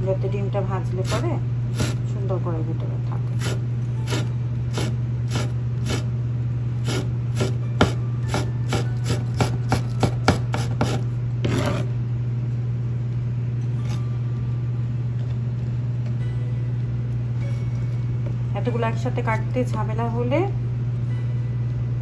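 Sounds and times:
steady low hum: 0.0s - 22.0s
knife scraping: 1.1s - 2.0s, 3.4s - 6.1s, 6.8s - 11.9s.

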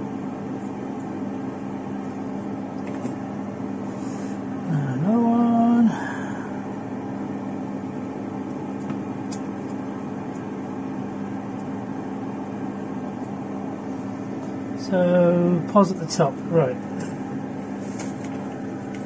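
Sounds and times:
low electrical hum: 0.0s - 19.0s
person humming: 4.6s - 6.6s.

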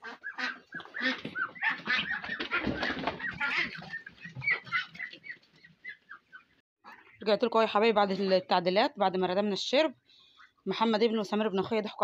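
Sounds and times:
poultry flock calling: 0.0s - 7.2s.

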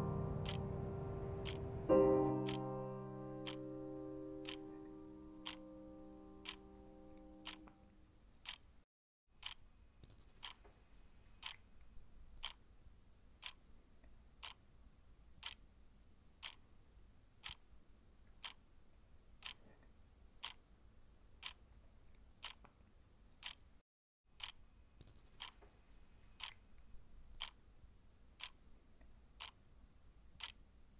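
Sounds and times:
clock ticking: 0.0s - 7.8s, 8.4s - 8.6s, 12.4s - 12.6s, 13.4s - 13.6s, 17.4s - 17.6s.

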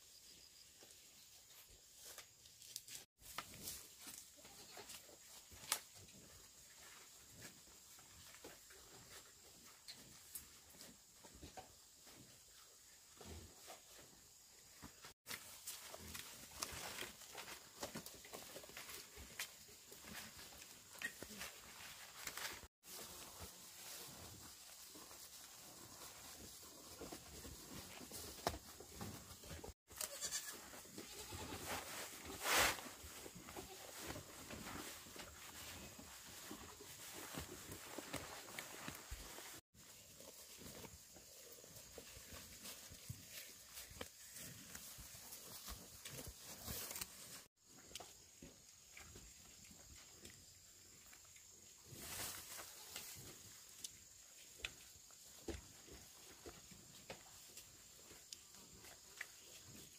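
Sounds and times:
goats bleating: 30.0s - 31.7s
soft ticks and rustles: 40.2s - 59.9s.

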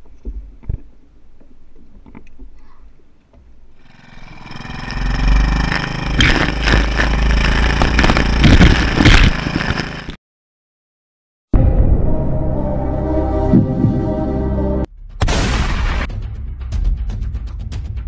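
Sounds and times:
boat motor running: 3.8s - 10.2s.

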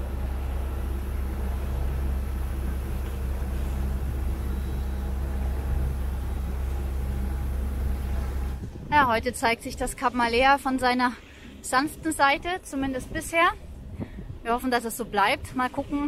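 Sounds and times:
bow wave rushing along hull: 0.0s - 9.2s
diesel engine droning: 0.0s - 9.2s.

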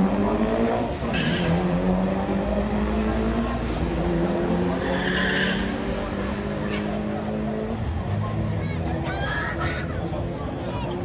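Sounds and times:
car engine revving high: 0.0s - 7.8s
tyres skidding on pavement: 0.0s - 10.2s.

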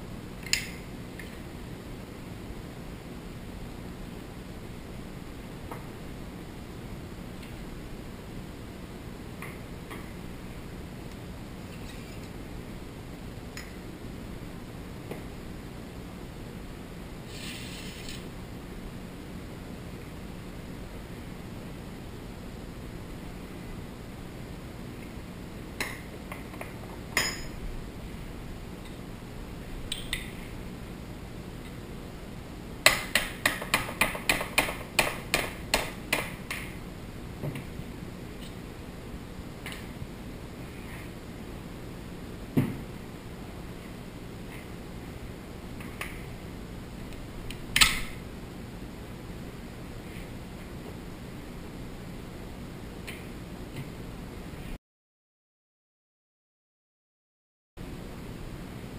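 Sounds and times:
steady hiss: 17.2s - 18.4s.

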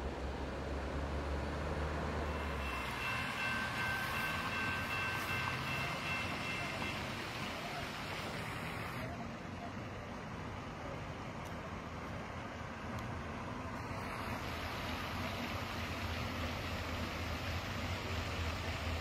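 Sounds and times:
crossing warning bell ringing: 2.2s - 8.1s.

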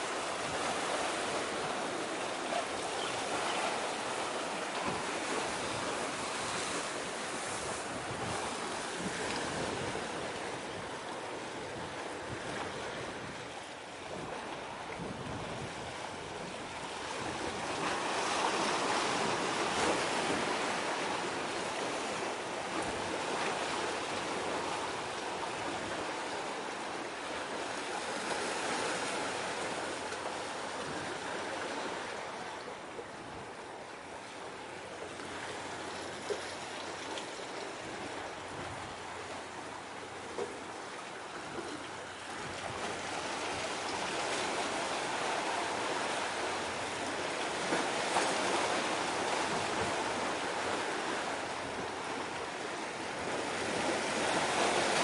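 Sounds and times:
sea waves washing: 0.0s - 55.0s
wind across microphone: 4.8s - 20.8s.

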